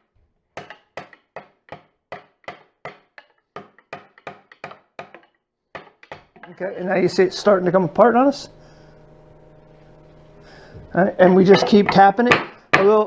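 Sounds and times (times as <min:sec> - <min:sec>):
rubber mallet tapping wood: 0:00.6 - 0:06.5.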